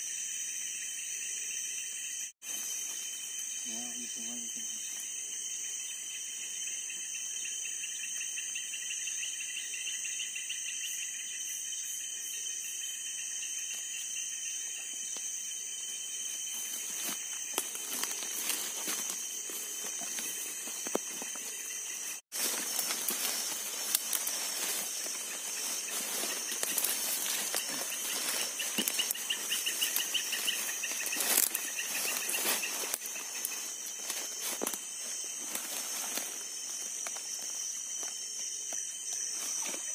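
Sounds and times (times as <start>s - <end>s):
night insects chorus: 0.0s - 39.9s
pulsing insect trill: 0.0s - 39.9s
rustling through wet undergrowth: 16.3s - 39.9s.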